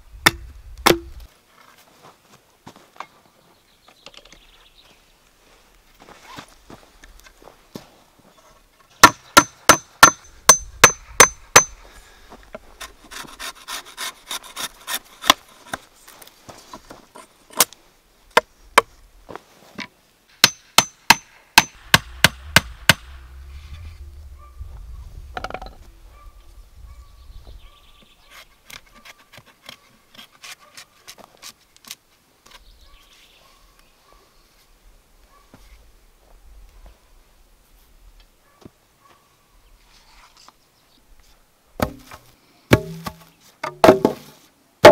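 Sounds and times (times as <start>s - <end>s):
hammer striking nails into wood: 9.0s - 11.7s, 20.4s - 23.0s, 42.7s - 44.2s.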